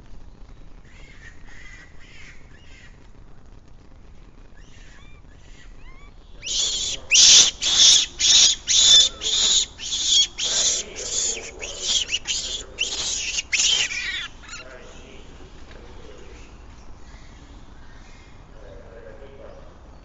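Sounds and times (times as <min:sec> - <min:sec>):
harsh animal calls: 0:04.6 - 0:19.7.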